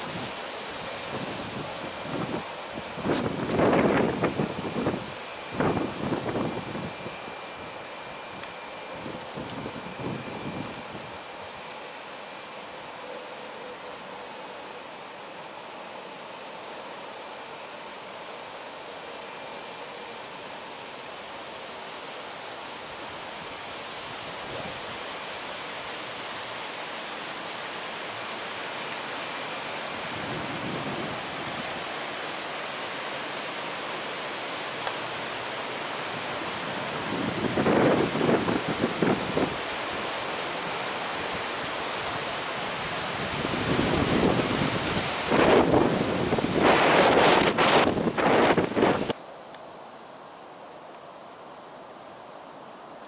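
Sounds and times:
wind buffeting microphone: 0.0s - 7.2s, 8.4s - 11.2s, 36.7s - 39.7s, 42.8s - 49.2s
wind hissing: 0.0s - 53.0s.

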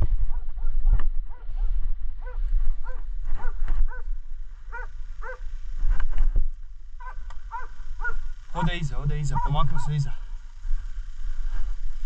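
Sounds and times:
hound baying with short barks: 9.3s - 9.9s.

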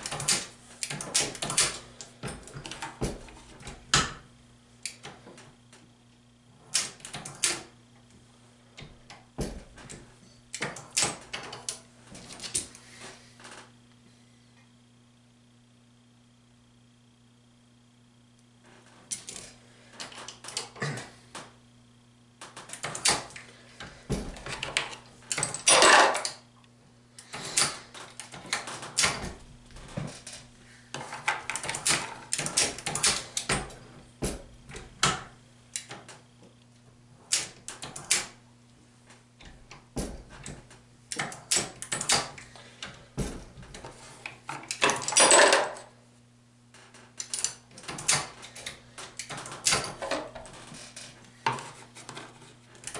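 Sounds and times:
reloading press rattling scrapes: 22.6s - 26.4s, 43.7s - 46.0s.

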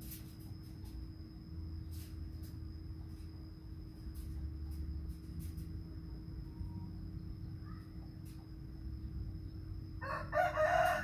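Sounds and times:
rustles: 0.0s - 6.0s
faint electrical hum: 0.0s - 11.0s.

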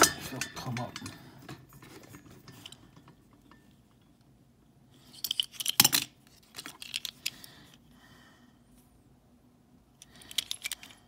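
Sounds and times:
toy car clicking and clinking: 10.0s - 11.0s.

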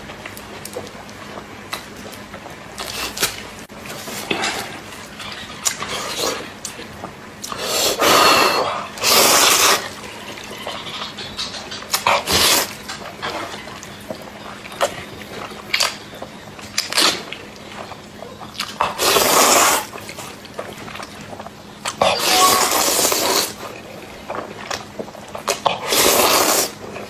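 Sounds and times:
wet slurping of noodles: 7.5s - 10.0s, 18.8s - 20.3s, 22.0s - 23.6s, 25.7s - 26.8s.

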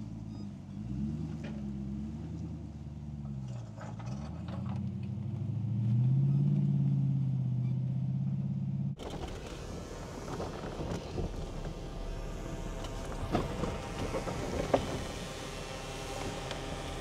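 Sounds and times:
truck engine revving under load: 0.0s - 17.0s
rough noisy rush: 9.0s - 17.0s.

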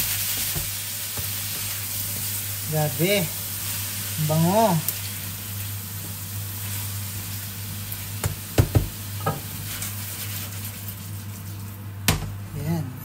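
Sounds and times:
vegetables sizzling in frying pan: 0.0s - 12.5s
spatula knocking on pan: 8.2s - 9.4s.

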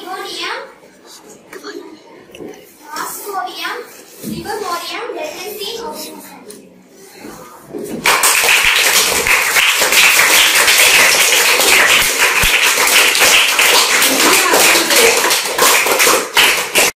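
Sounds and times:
children applauding: 8.0s - 17.0s.

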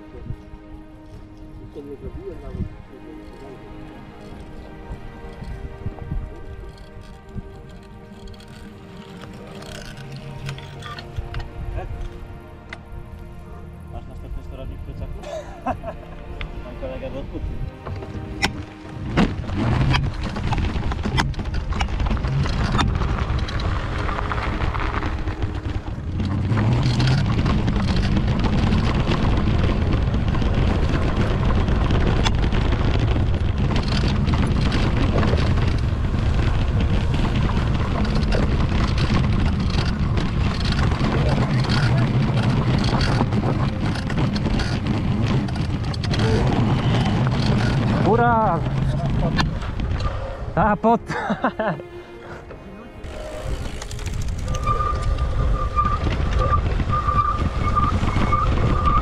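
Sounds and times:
wind buffeting microphone: 0.0s - 8.4s, 16.8s - 50.7s, 53.0s - 59.0s
tyres rumbling over dirt: 0.0s - 13.9s, 15.3s - 59.0s
bike knocks and rattles: 17.8s - 50.0s.

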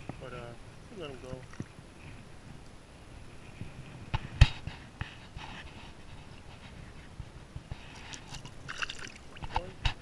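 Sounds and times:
water splashing and dripping: 8.0s - 9.6s.

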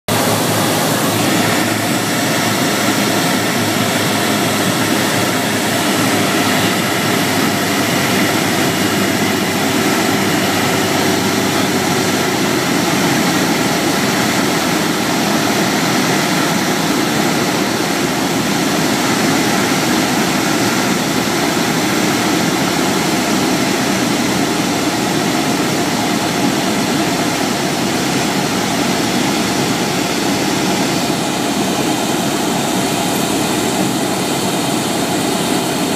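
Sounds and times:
propeller airplane engine drone: 0.0s - 35.9s
rushing air: 0.1s - 35.9s.

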